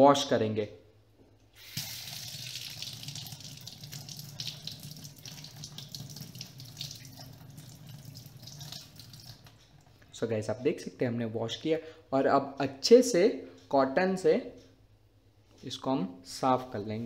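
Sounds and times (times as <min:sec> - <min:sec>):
tap water running into steel sink: 0:01.6 - 0:09.6.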